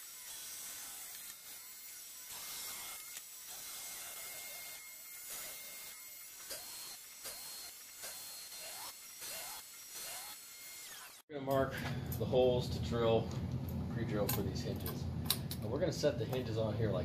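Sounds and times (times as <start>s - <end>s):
router spindle whine: 0.0s - 11.2s.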